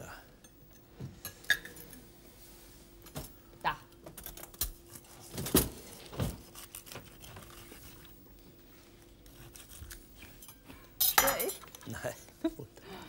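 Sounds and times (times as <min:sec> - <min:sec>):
knife and fork clinking on plate: 0:10.4 - 0:11.9.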